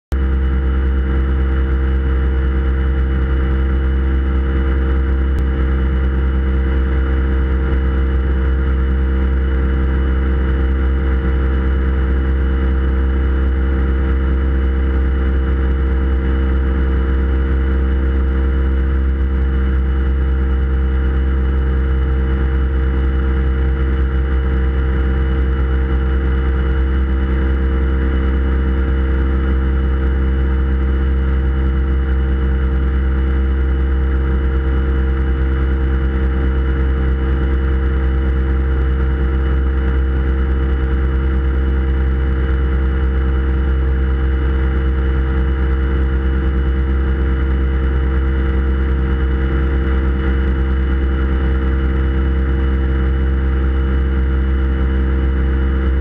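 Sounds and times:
outboard motor running: 0.1s - 56.0s.

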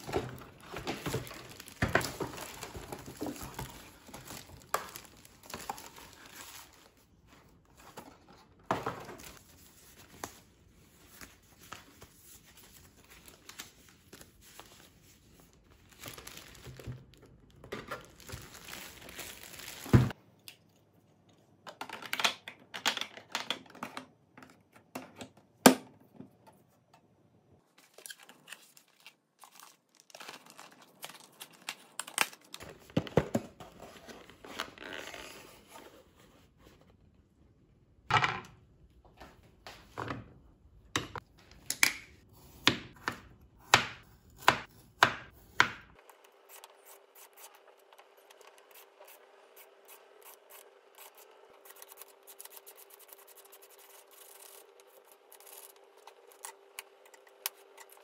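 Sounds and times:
plastic and cardboard crinkling: 0.0s - 20.2s, 27.8s - 36.8s.

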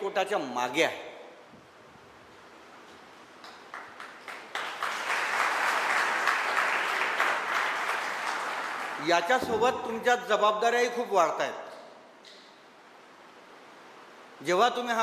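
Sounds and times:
audience applauding: 3.4s - 9.1s.

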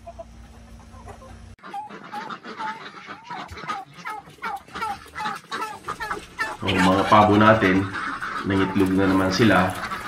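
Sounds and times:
hens clucking: 0.0s - 10.0s
turkeys calling: 0.0s - 10.0s.

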